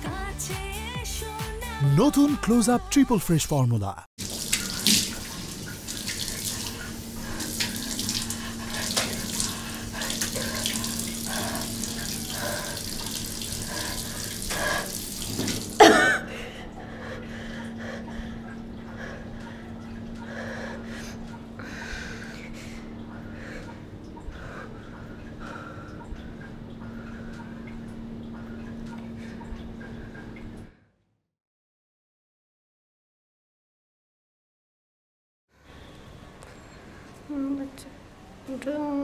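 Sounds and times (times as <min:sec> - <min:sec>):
tap water running into sink: 0:04.2 - 0:16.0.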